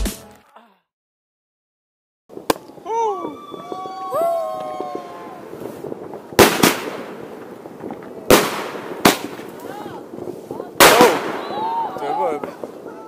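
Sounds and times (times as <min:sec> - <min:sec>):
fireworks bangs: 0:02.3 - 0:13.0
voices calling out: 0:09.6 - 0:13.0.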